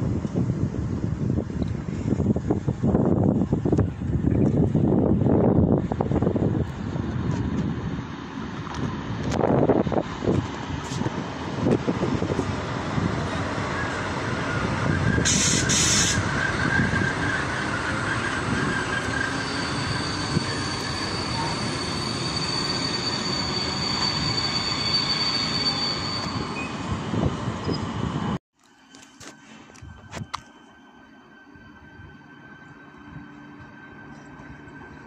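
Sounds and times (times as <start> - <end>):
train wheels rumbling on rail: 0.0 - 28.4
high brake squeal: 13.6 - 26.9
brief hiss: 15.3 - 16.2.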